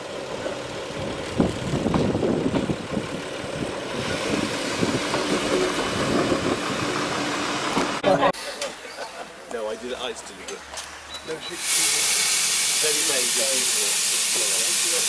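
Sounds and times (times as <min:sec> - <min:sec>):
steam locomotive rumbling: 0:00.0 - 0:08.9, 0:11.3 - 0:15.0
steam hiss: 0:11.4 - 0:15.0.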